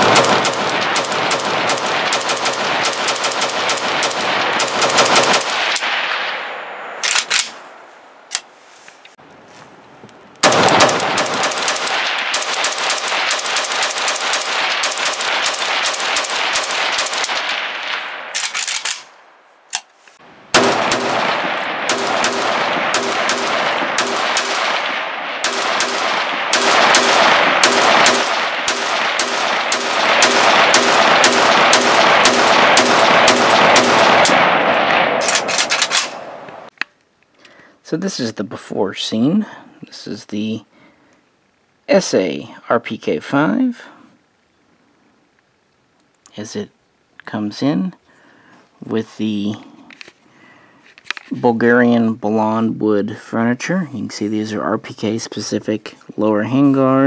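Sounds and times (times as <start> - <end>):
rifle gunshots: 0.0 - 7.6, 10.4 - 19.2, 20.5 - 36.7.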